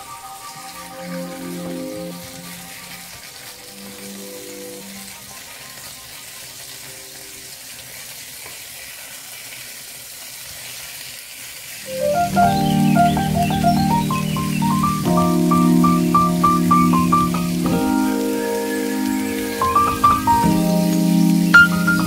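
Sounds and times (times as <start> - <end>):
louder music: 0.0 - 5.1, 11.9 - 22.0
soft background music: 0.0 - 6.2, 11.9 - 22.0
chicken sizzling in hot oil: 0.0 - 22.0.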